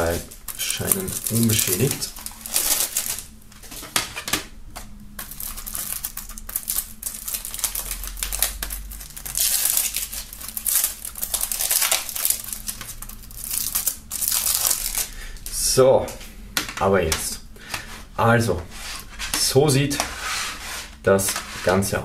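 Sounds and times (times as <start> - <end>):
shrink-wrap crinkling: 0.0 - 4.4, 5.2 - 16.2.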